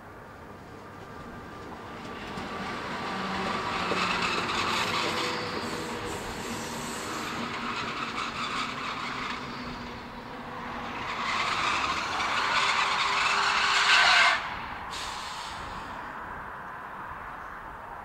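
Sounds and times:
diesel locomotive humming: 0.2 - 16.2
metal wheels screeching on rails: 2.3 - 16.0.

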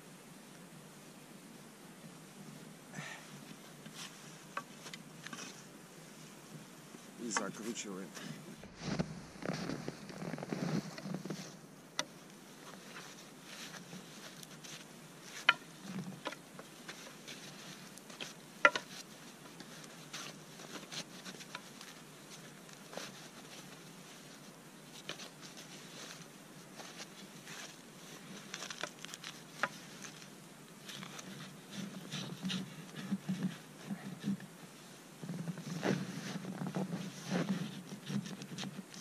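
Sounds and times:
gloves rustling: 3.0 - 39.0
footsteps crunching in snow: 6.9 - 11.7, 12.3 - 39.0
wood knocking: 18.6 - 18.9.

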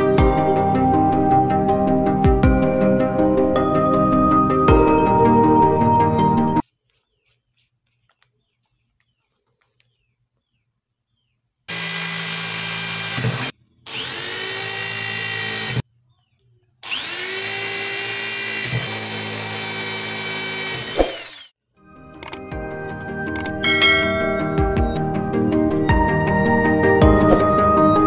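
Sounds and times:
electric drill boring into wood: 11.7 - 15.8, 16.8 - 21.6.

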